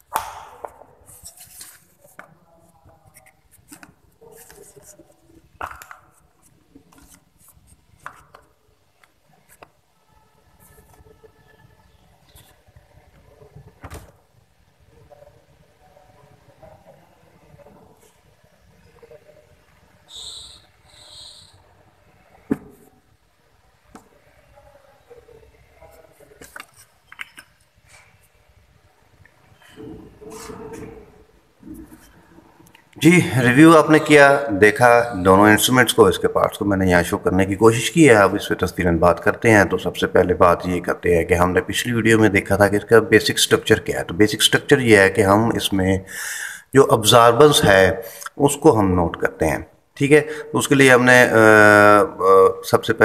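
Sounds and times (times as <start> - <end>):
faint rubbing and scraping: 1.0 - 8.5, 29.5 - 32.7.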